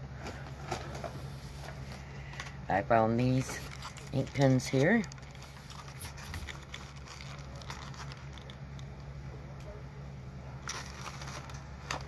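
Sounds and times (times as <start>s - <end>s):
steady low hum: 0.0s - 12.0s
packet rustling and clicking: 3.2s - 9.1s, 10.6s - 12.0s.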